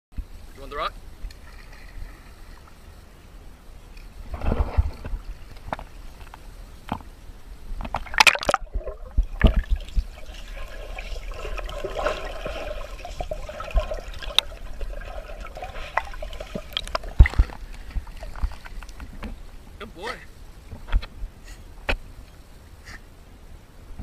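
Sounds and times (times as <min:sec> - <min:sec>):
pool water splashing: 0:07.9 - 0:20.2.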